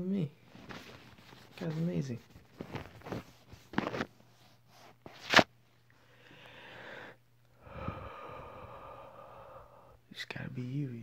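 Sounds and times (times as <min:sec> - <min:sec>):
faint low hum: 0:00.0 - 0:11.0
soft breaths into microphone: 0:06.0 - 0:10.8.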